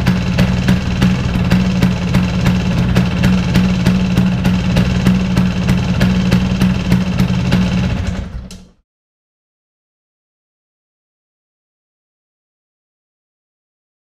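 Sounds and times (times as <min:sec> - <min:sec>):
sharp engine ticks: 0:00.0 - 0:08.7
scooter engine idling: 0:00.0 - 0:08.8.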